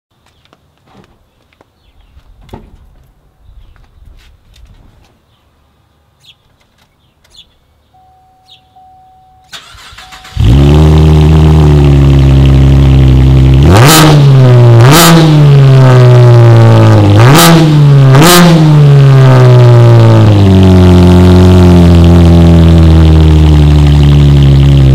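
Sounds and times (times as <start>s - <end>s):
car engine starting and idling: 7.3s - 24.9s
car engine revving: 9.5s - 24.9s.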